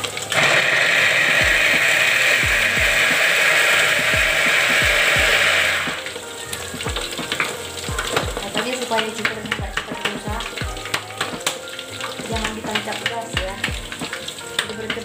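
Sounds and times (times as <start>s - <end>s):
food chopper motor whirring: 0.3s - 6.0s.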